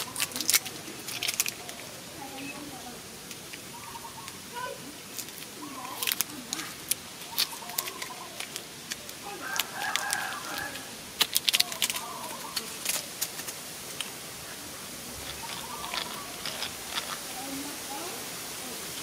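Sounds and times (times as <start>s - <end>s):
bird calling: 0.0s - 13.2s, 15.2s - 17.5s
clicks of small plastic parts: 5.2s - 14.1s.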